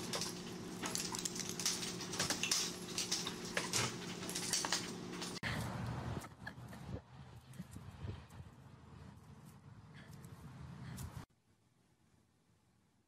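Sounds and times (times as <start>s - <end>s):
dog claws rattling baby gate: 0.0s - 5.4s
steady low hum: 0.0s - 11.3s.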